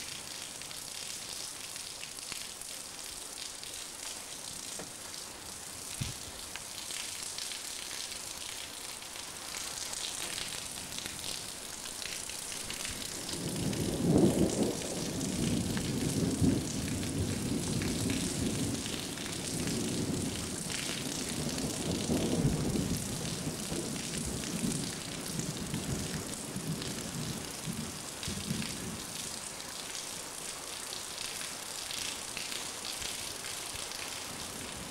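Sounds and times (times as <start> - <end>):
steady rain hiss: 0.0 - 34.9
rolling thunder: 13.3 - 29.0.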